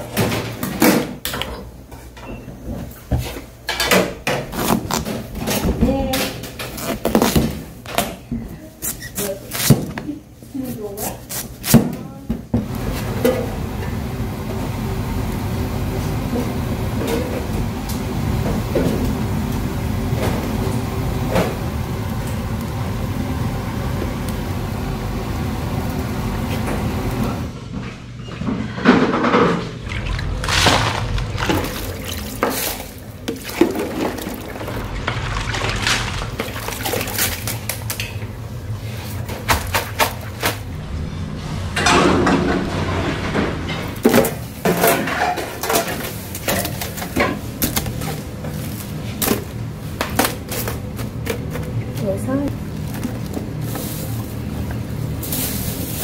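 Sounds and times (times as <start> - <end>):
kitchen pans and dishes clattering: 0.0 - 6.8, 28.3 - 38.3, 41.6 - 53.0.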